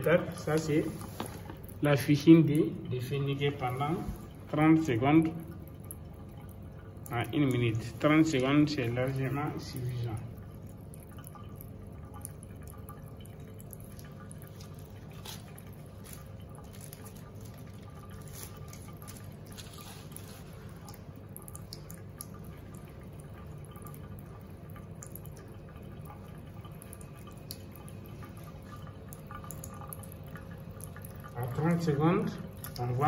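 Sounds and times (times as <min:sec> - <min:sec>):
steady low hum: 0:00.0 - 0:33.0
water dripping into a sink: 0:00.0 - 0:33.0.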